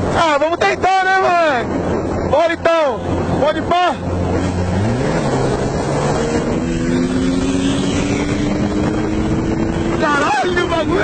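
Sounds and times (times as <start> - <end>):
wind rushing over microphone: 0.0 - 11.0
motorcycle engine accelerating hard: 4.0 - 11.0.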